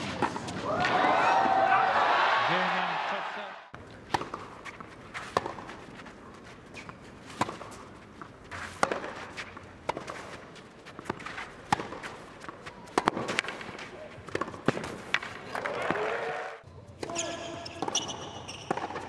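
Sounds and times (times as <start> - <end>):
racket hitting tennis ball: 0.0 - 0.6, 3.8 - 16.0, 17.0 - 19.0.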